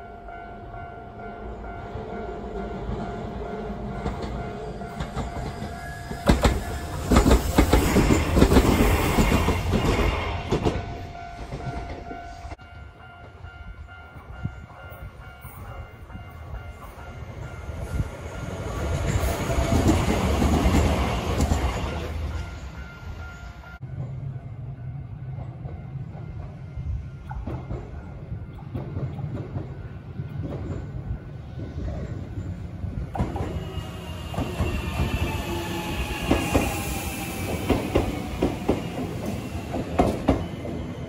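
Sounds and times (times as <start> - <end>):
electric train passing: 0.0 - 41.0
train wheels clacking over rail joints: 4.0 - 12.2, 27.2 - 31.0, 37.4 - 40.9.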